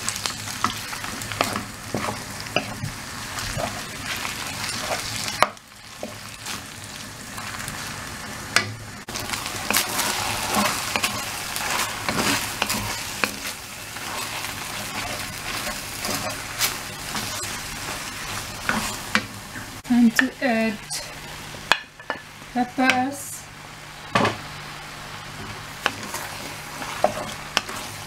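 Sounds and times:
meat sizzling in a wok: 0:00.0 - 0:28.0
spatula scraping a pan: 0:00.6 - 0:06.6, 0:09.1 - 0:19.7, 0:25.5 - 0:28.0.

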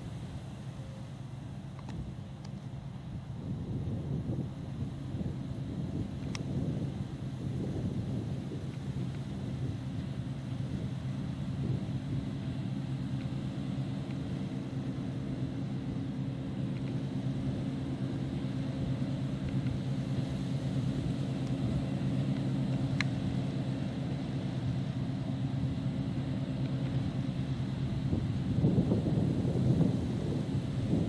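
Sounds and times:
combine harvester running: 0:00.0 - 0:31.0.

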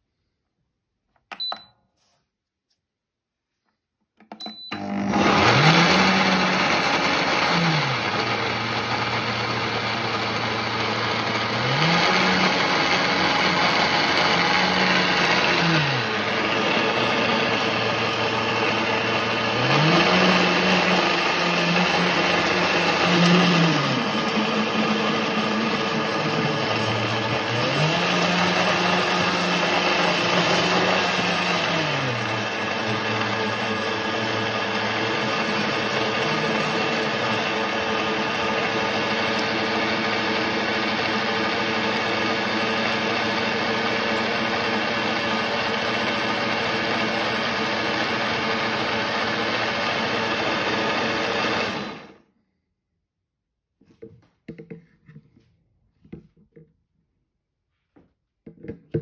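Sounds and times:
blender motor running: 0:04.7 - 0:52.2.

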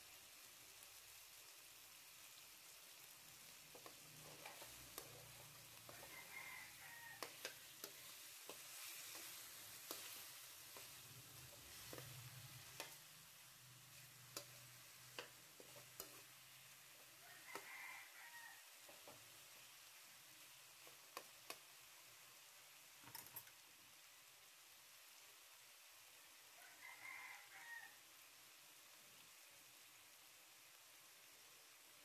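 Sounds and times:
chicken sizzling in wok: 0:00.0 - 0:32.0
metal spatula scraping pan: 0:03.8 - 0:13.0, 0:13.9 - 0:16.4.

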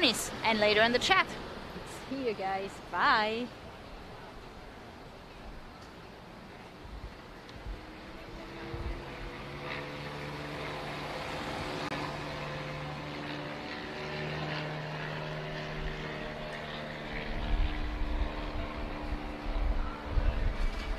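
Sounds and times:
engine hum: 0:00.0 - 0:20.9
low rumbling buffets: 0:06.3 - 0:20.9.

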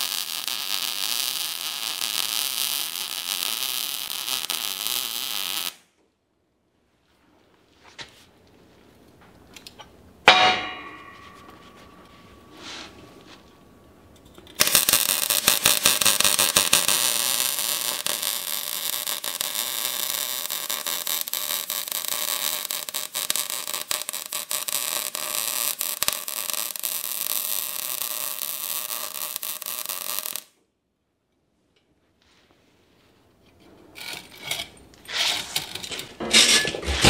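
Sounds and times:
welding arc crackling hiss: 0:00.0 - 0:05.9, 0:14.5 - 0:30.5.

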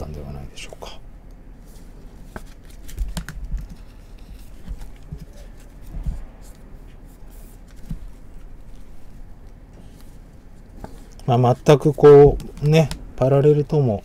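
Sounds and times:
faint rustle: 0:01.5 - 0:11.8.

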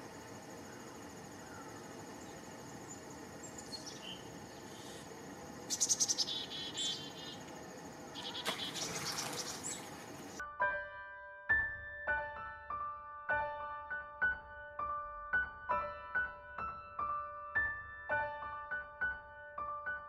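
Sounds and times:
insects chirping: 0:00.0 - 0:10.4
small songbirds calling: 0:00.0 - 0:10.4.

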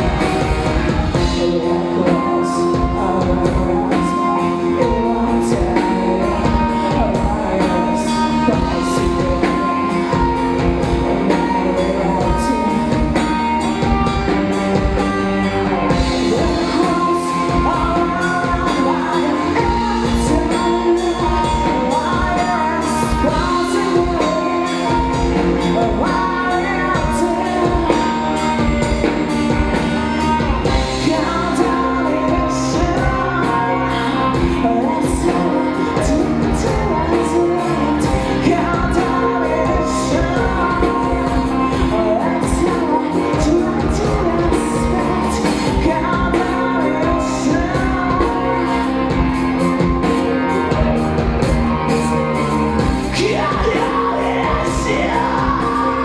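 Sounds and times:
bass guitar: 0:00.0 - 0:56.0
distorted electric guitar: 0:00.0 - 0:56.0
drum kit with cymbals: 0:00.0 - 0:56.0
woman singing: 0:00.0 - 0:56.0.

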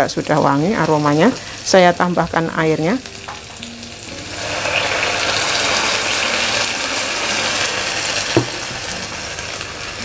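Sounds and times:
water sizzling in hot oil: 0:00.0 - 0:10.0
knock: 0:08.3 - 0:08.6.

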